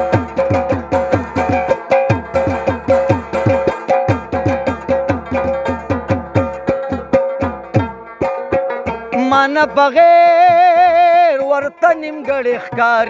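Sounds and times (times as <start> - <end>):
hand drum strokes: 0.0 - 11.5
plucked lute melody: 0.0 - 13.0.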